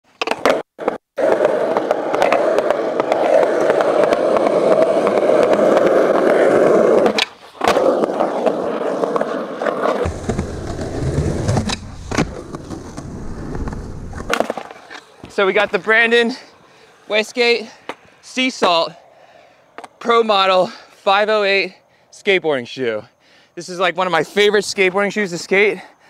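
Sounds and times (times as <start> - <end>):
skateboard wheels rolling on concrete: 0.1 - 22.8
skateboard landing clack: 0.2 - 8.5, 9.1 - 15.4
low rumble: 10.1 - 14.3.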